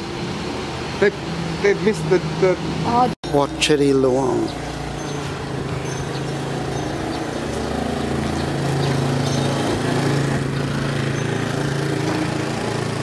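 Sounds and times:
small petrol engine running: 4.2 - 13.0.

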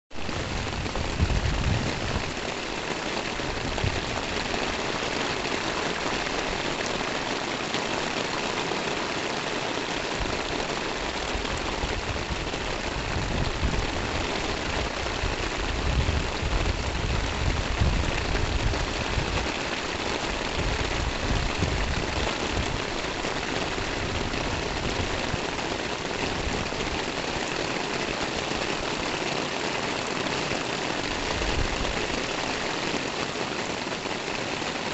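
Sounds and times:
rain falling: 0.1 - 34.9.

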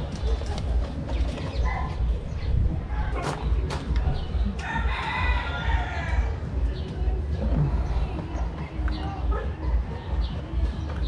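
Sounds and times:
rooster crowing: 4.6 - 6.4.

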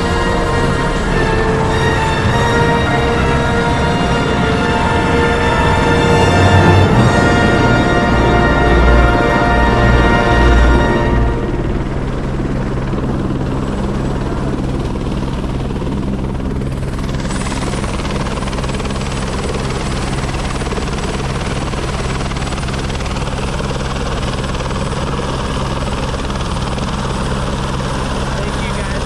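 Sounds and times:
helicopter rotor and engine hum: 0.0 - 29.0
high turbine whine: 0.0 - 29.0.

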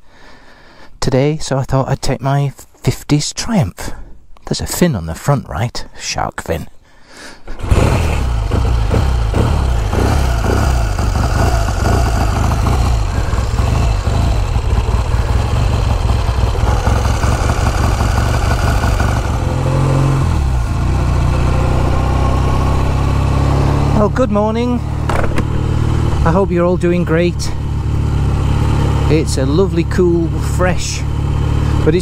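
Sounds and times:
motorcycle engine idling: 7.6 - 32.0.

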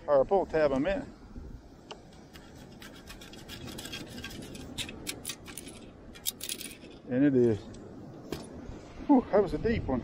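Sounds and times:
sand rattling in a scoop: 2.1 - 6.9.

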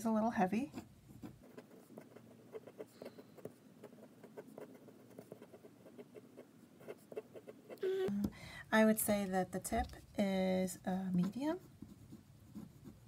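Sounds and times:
pen nib scratching paper: 0.7 - 7.8, 11.4 - 13.0.

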